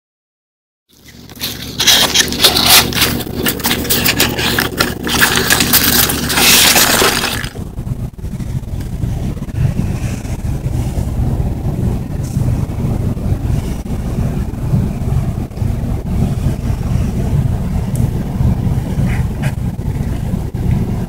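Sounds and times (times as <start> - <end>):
packing peanuts crackling and squeaking: 0.9 - 7.6
low rumbling handling noise: 0.9 - 21.0.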